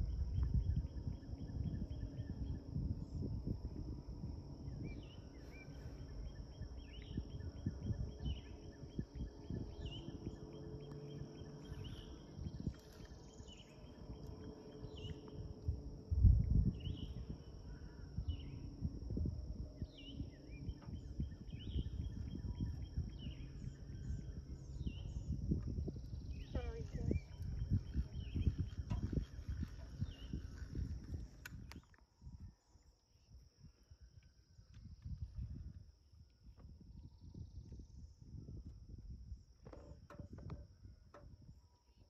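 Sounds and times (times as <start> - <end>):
high insect drone: 0.0 - 42.0
bird chirps: 4.7 - 15.4, 19.8 - 31.1.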